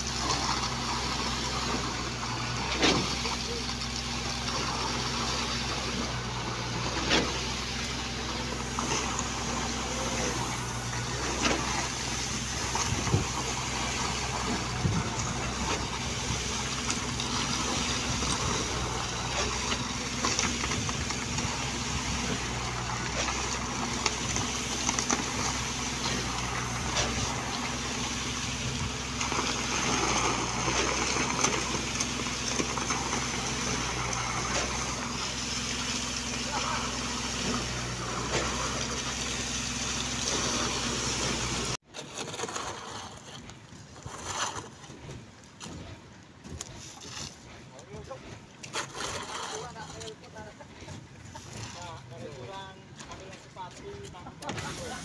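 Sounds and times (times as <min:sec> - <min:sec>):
diesel pump engine running: 0:00.0 - 0:41.9.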